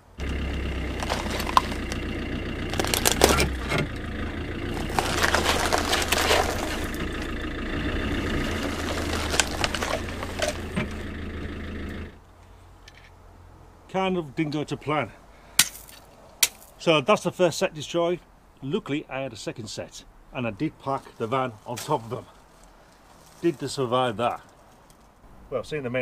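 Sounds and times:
tyre crunching over gravel: 0:00.0 - 0:12.2, 0:20.9 - 0:25.1
van engine idling: 0:00.0 - 0:12.2.

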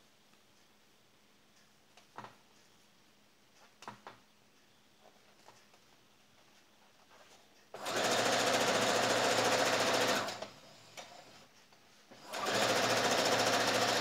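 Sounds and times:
sewing machine stitching: 0:07.8 - 0:11.4, 0:12.2 - 0:14.0.

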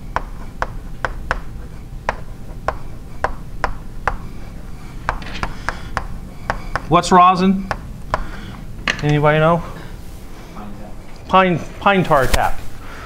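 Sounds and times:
chalk tapping on blackboard: 0:00.0 - 0:07.0, 0:07.6 - 0:08.4
low room hum: 0:00.0 - 0:13.0.

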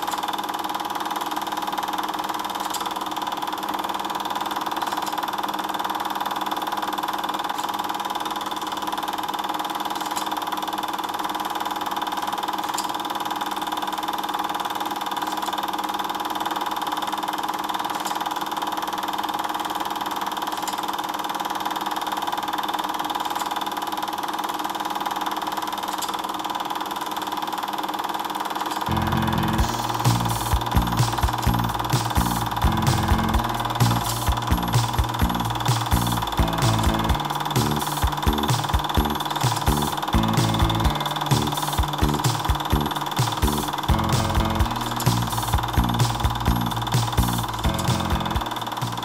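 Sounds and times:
steady machine hum: 0:28.8 - 0:49.0.

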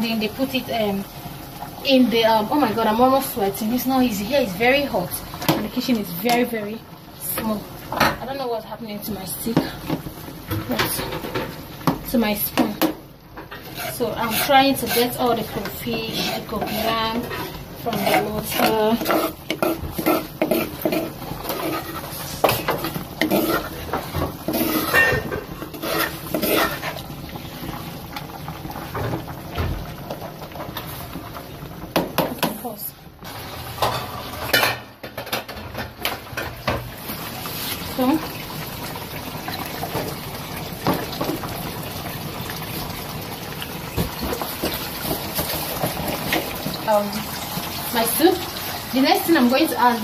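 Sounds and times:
soup bubbling in metal pot: 0:09.6 - 0:35.0, 0:36.0 - 0:49.0
spoon scraping inside a pot: 0:13.5 - 0:27.1.

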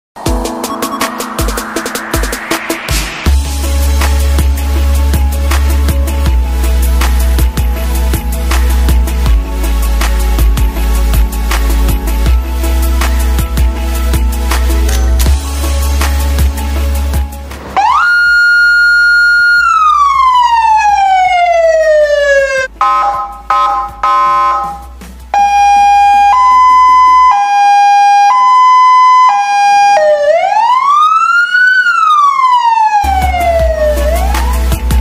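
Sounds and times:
background music with bass beat: 0:00.2 - 0:30.9, 0:31.8 - 0:35.0
short choppy siren tones: 0:17.8 - 0:30.6
two-tone hi-lo siren: 0:17.8 - 0:34.8
siren wail: 0:17.8 - 0:35.0.

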